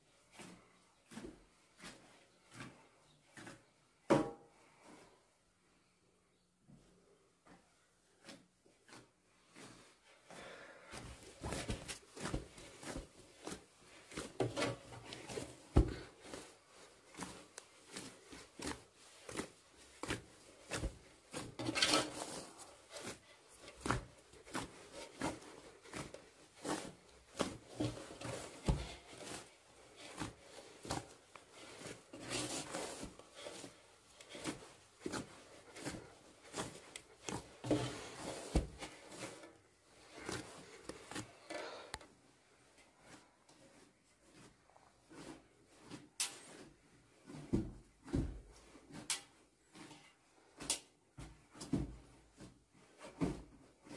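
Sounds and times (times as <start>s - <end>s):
dough pressing and slapping: 0.2s - 4.6s, 7.5s - 53.9s
dough scraping metal basin: 17.9s - 41.9s.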